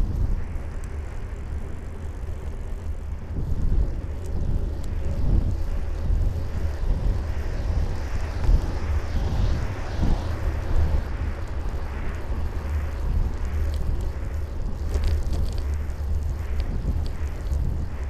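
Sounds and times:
faint ticks: 0:00.0 - 0:07.5, 0:11.4 - 0:18.0
tyre and road noise: 0:00.0 - 0:18.0
wind buffeting microphone: 0:00.0 - 0:18.0.

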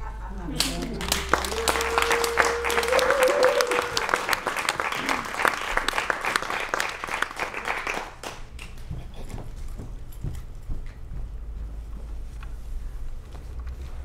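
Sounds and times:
audience applauding: 0:00.5 - 0:08.8.

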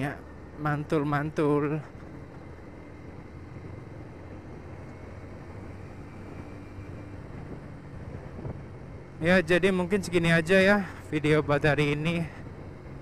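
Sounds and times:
motorcycle engine cruising: 0:00.0 - 0:13.0
wind noise on microphone: 0:06.0 - 0:09.0.

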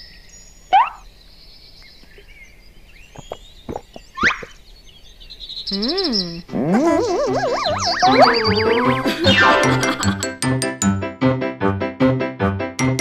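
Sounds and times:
cartoon swoosh: 0:06.5 - 0:10.0
bouncy music: 0:06.5 - 0:13.0
wavering tone: 0:06.7 - 0:10.1
rising slide: 0:06.8 - 0:10.2.

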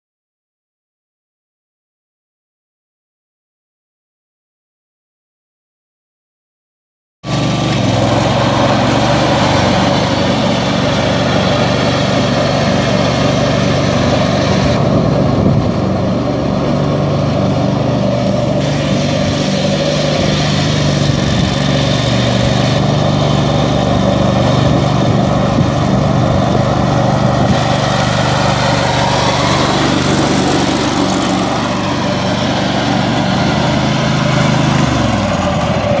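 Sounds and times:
mower engine running: 0:07.3 - 0:36.0.

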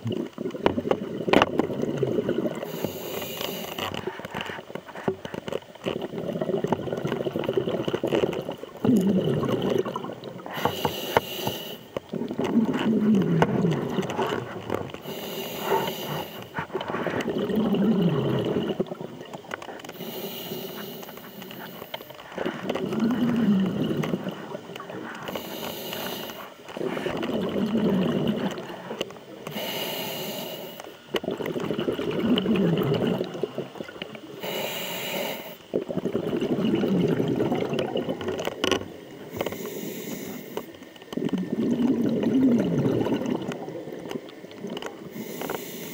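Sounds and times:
exhaled bubbles gurgling: 0:00.0 - 0:45.9
regulator inhale hiss: 0:02.6 - 0:04.0, 0:10.4 - 0:12.0, 0:15.0 - 0:17.2, 0:19.9 - 0:22.6, 0:25.0 - 0:27.2, 0:28.7 - 0:31.1, 0:34.4 - 0:35.7, 0:39.3 - 0:40.8, 0:45.0 - 0:45.9.

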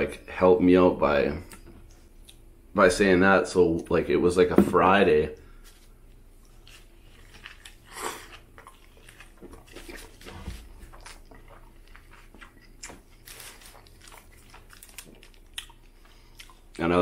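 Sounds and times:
wet crackly chewing: 0:06.1 - 0:16.8.

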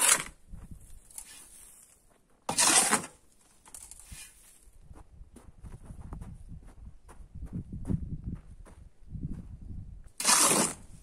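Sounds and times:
shovel scraping sand and gravel: 0:00.0 - 0:00.4, 0:01.1 - 0:04.6, 0:10.2 - 0:11.0.

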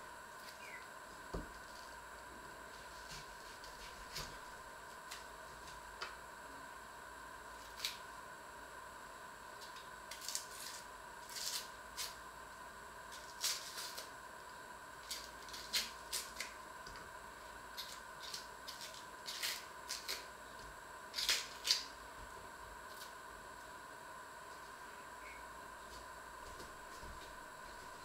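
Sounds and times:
faint steady whine: 0:00.0 - 0:28.0
onion skin crackling: 0:07.5 - 0:08.1, 0:09.6 - 0:12.2, 0:13.1 - 0:14.1, 0:15.0 - 0:16.6, 0:17.7 - 0:20.4, 0:21.1 - 0:22.0.

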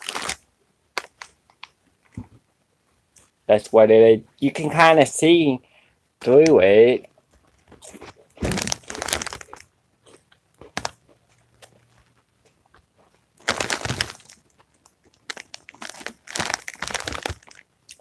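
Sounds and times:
chip bag crinkling: 0:00.0 - 0:00.4, 0:07.7 - 0:12.2, 0:13.4 - 0:18.0
crunchy chewing: 0:07.6 - 0:18.0.

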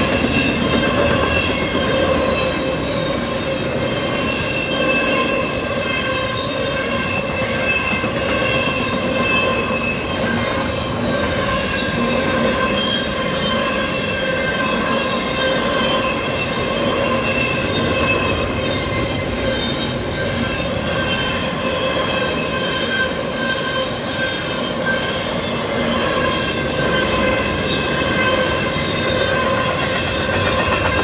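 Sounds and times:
freight train wheels rumbling: 0:00.0 - 0:31.0.

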